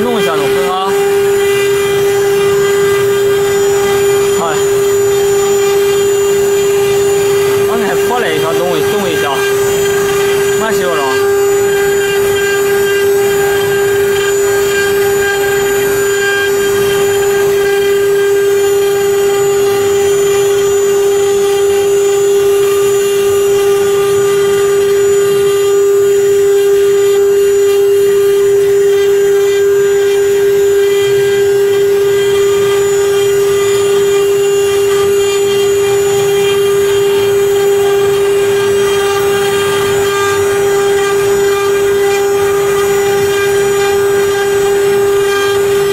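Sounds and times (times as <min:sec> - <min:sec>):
bit cutting wood: 0:00.0 - 0:45.9
router spindle whine: 0:00.0 - 0:45.9.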